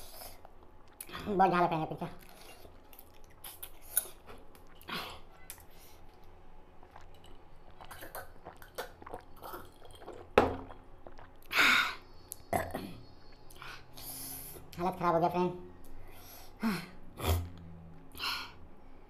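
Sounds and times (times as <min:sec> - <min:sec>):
man chewing: 0:02.2 - 0:11.6.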